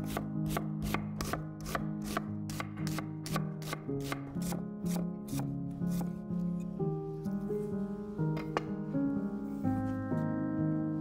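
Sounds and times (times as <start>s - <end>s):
knife strikes on wooden board: 0.0s - 6.1s
background music: 0.0s - 11.0s.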